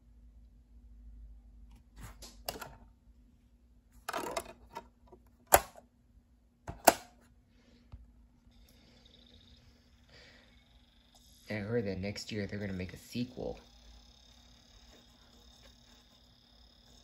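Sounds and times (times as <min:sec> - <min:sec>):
disc snapping onto spindle: 0:05.5 - 0:05.8, 0:06.7 - 0:07.1
lid snapping shut: 0:06.7 - 0:07.1.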